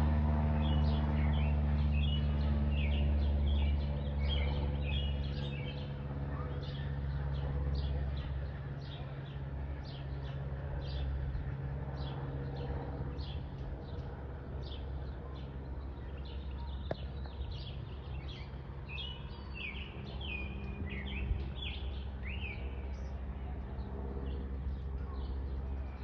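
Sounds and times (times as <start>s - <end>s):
propeller plane engine drone: 0.0s - 26.0s
small birds chirping: 0.5s - 26.0s.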